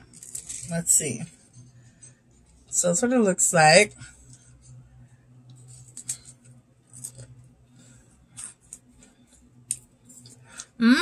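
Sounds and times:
loud hummed vocal sound: 10.8 - 11.0.

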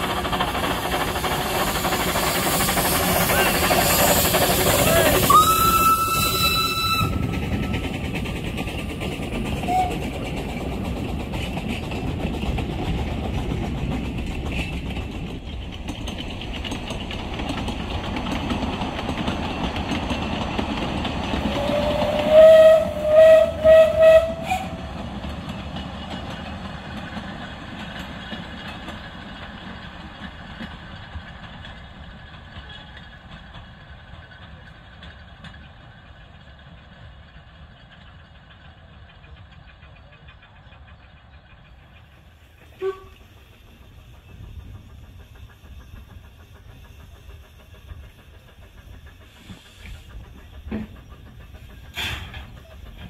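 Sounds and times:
train carriages rumbling on track: 0.0 - 53.0
steam locomotive whistle: 3.2 - 7.8, 9.6 - 10.0, 21.4 - 25.0, 42.7 - 43.3.

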